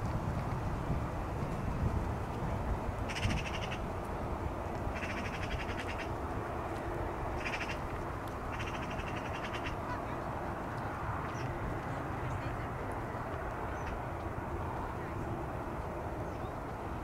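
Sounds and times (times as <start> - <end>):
low wind rumble: 0.0 - 17.0
animal rattling calls: 3.1 - 3.8, 5.0 - 6.1, 7.4 - 7.8, 8.5 - 9.8.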